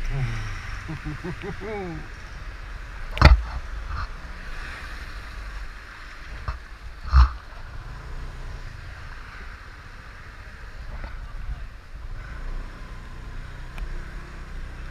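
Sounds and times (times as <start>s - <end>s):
rain rushing: 0.0s - 3.6s
low rumble: 0.0s - 14.9s.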